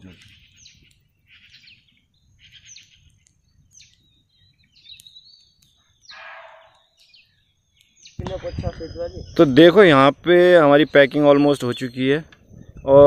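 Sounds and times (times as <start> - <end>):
birds calling: 0.0 - 13.0
wind rumble on microphone: 8.2 - 9.6, 12.3 - 13.0.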